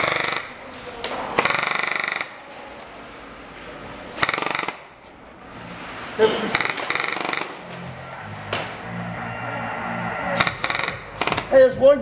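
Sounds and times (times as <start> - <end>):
airsoft rifle full auto bursts: 4.2 - 4.8.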